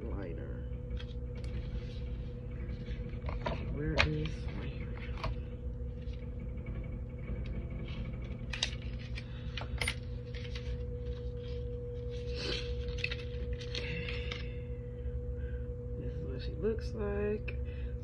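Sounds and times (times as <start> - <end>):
faint constant tone: 0.0 - 18.0
steady low hum: 0.0 - 18.0
packaging rustling: 8.5 - 14.5.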